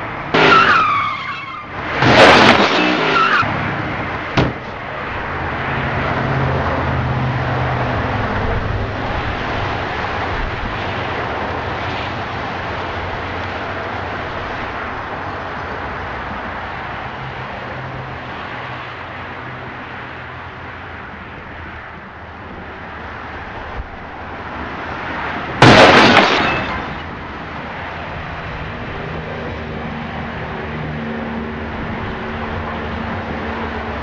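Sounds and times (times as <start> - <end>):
road traffic: 0.0 - 34.0
car collision crash: 0.4 - 3.5, 4.3 - 4.8, 25.6 - 27.1.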